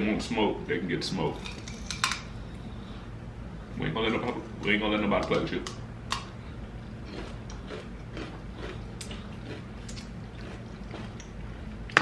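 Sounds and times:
faint low hum: 0.0s - 12.0s
chewing and food handling: 5.2s - 12.0s.

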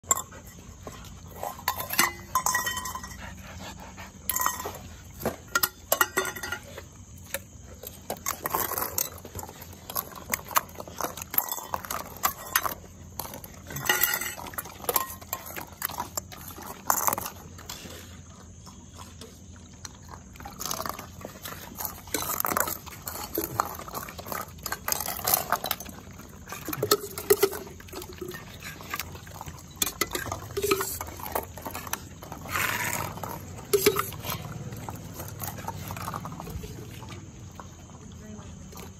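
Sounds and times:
dogs eating: 0.0s - 38.9s
steel dog bowls clattering: 0.0s - 38.9s
metal spoon scraping steel pot: 29.7s - 31.2s, 32.4s - 34.5s.

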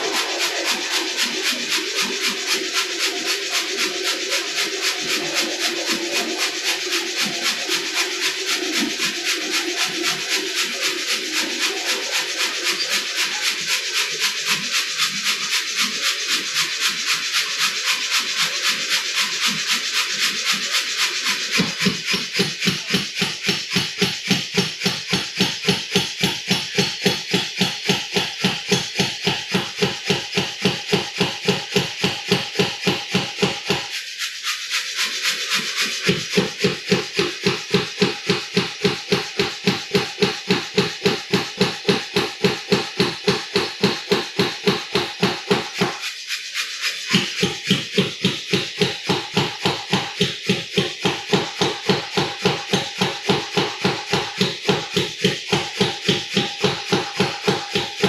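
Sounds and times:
power hammer striking hot steel: 21.5s - 33.9s, 36.1s - 46.0s, 47.1s - 58.0s.

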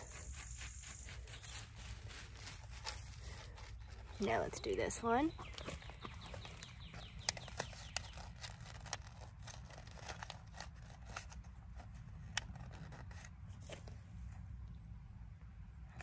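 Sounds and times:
mulch and soil crackling: 0.0s - 11.1s.

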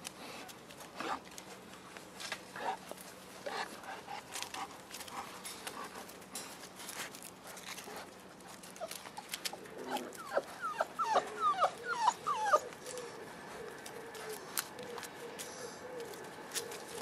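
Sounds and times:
puppies whining: 8.3s - 17.0s.

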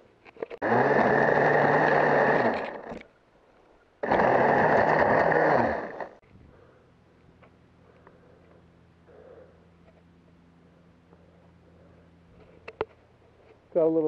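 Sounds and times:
electric pole saw motor: 0.4s - 3.1s, 4.0s - 6.2s.

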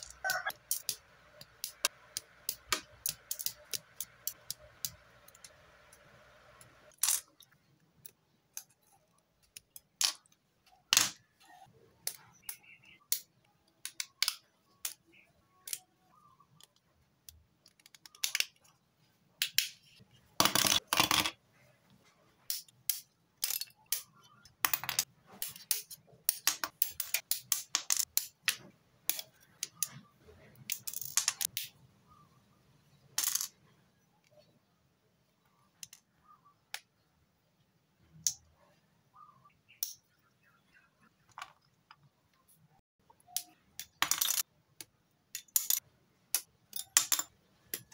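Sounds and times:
plastic parts clicking: 0.0s - 6.0s, 12.0s - 15.9s, 16.6s - 18.7s, 22.5s - 31.7s, 43.2s - 47.9s.

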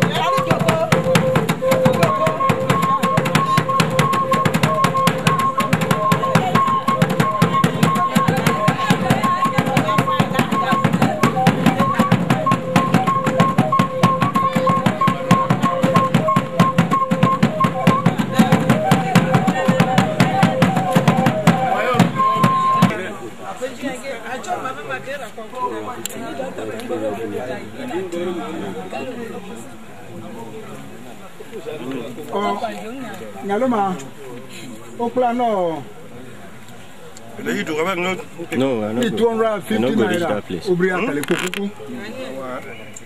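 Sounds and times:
fast drumming on barrel drum: 0.0s - 23.0s
steady pitched tone: 0.0s - 23.0s.

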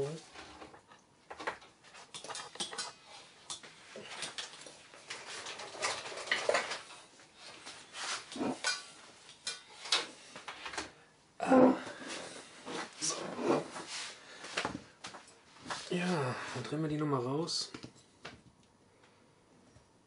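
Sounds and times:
metal tools clinking and rattling: 2.0s - 7.0s.

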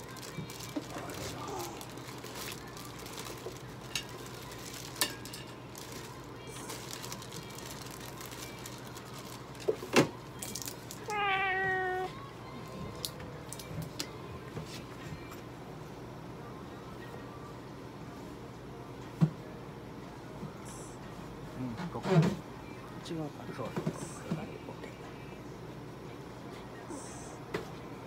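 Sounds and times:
cat meowing: 11.1s - 12.2s.

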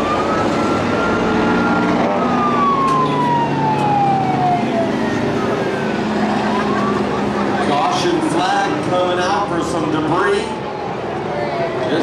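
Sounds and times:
siren wailing: 0.0s - 8.0s
truck engines running: 0.0s - 12.0s.

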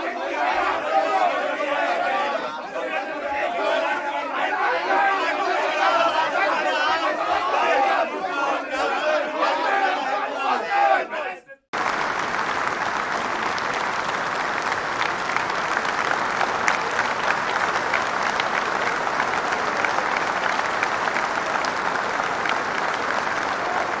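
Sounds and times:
crowd applauding: 11.7s - 24.0s.

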